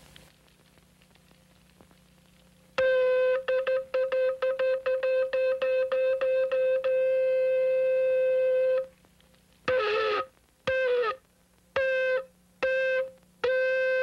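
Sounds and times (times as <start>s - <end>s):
horn blasts: 11.8s - 14.0s.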